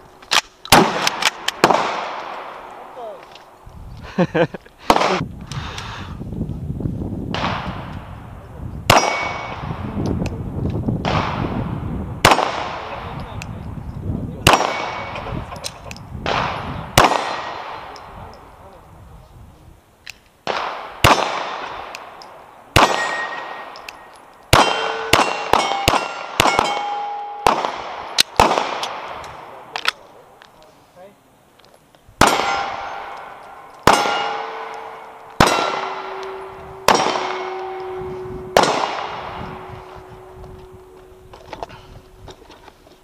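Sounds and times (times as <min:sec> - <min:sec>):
metal clanging when struck: 0:32.2 - 0:41.7.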